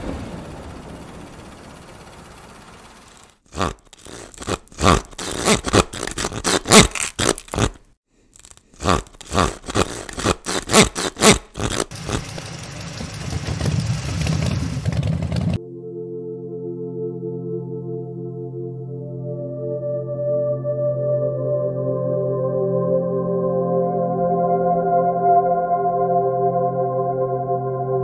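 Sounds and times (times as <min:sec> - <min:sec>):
steady noise with low hum: 0:00.0 - 0:03.4.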